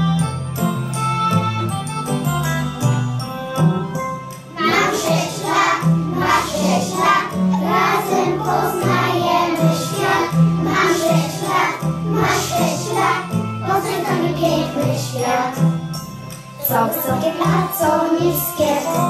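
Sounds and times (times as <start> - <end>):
children singing: 4.6 - 15.7, 16.6 - 19.0.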